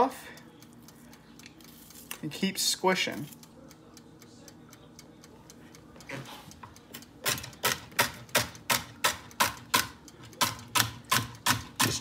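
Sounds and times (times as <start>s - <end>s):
faint ticking: 0.1s - 7.3s
knife chopping on cutting board: 7.3s - 12.0s.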